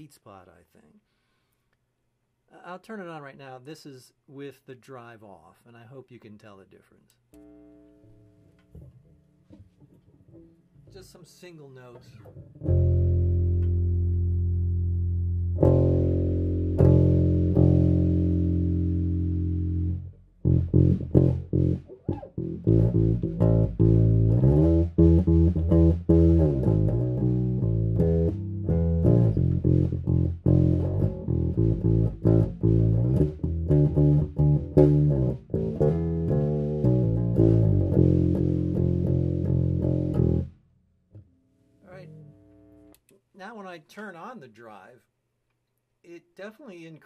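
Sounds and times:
electric bass notes plucked: 12.3s - 40.6s.

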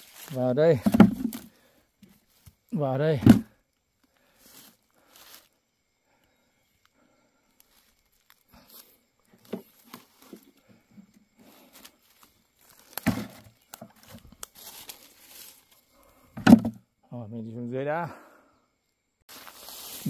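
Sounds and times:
undergrowth rustling and crackling: 0.0s - 2.8s, 3.9s - 5.6s, 6.7s - 16.2s, 19.3s - 20.0s.

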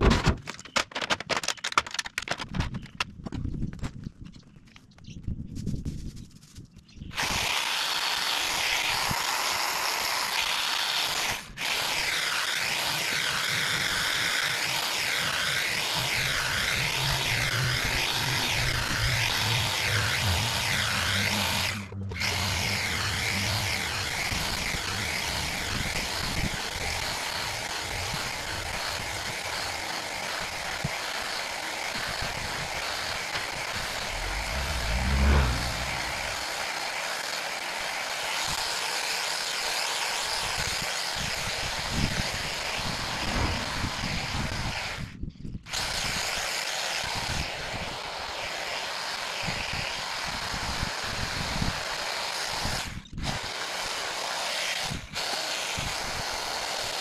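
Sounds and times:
hedge trimmer cutting: 7.1s - 45.1s, 45.7s - 57.0s
vehicle passing rumble: 17.2s - 24.3s, 33.8s - 36.4s.

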